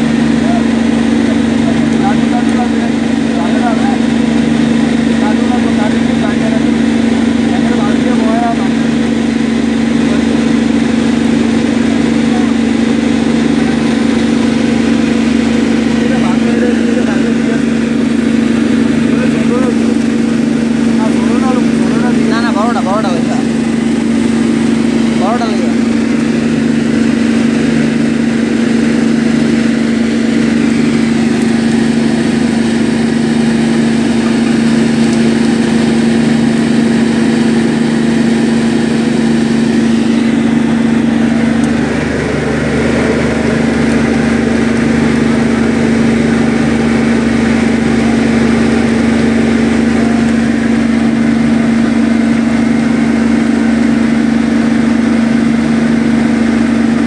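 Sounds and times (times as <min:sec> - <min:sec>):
boat engine running: 0:00.0 - 0:57.0.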